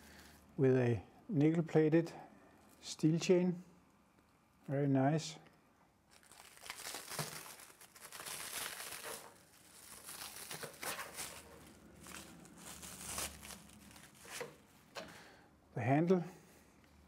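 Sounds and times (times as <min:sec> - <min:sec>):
plastic bag crinkling: 0:06.0 - 0:14.9.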